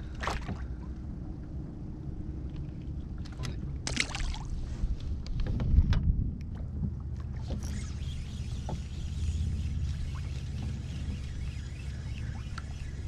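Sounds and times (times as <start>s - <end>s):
water lapping against kayak: 0.0s - 1.0s
wind buffeting microphone: 4.4s - 7.0s.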